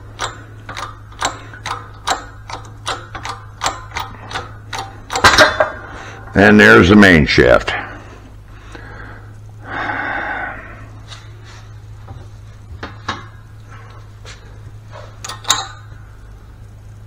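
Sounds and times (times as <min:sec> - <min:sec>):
metallic rattle: 0:00.0 - 0:06.6, 0:14.9 - 0:16.4
low steady hum: 0:00.0 - 0:17.0
metal clank: 0:00.2 - 0:06.4, 0:15.2 - 0:15.9
metal gears clinking: 0:15.2 - 0:15.9.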